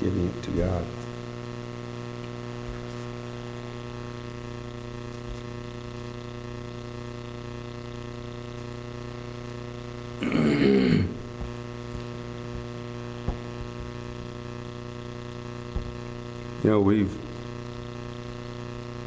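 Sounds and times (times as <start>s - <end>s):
electrical mains hum: 0.0s - 19.0s
man's brief vocal sound: 10.2s - 11.2s.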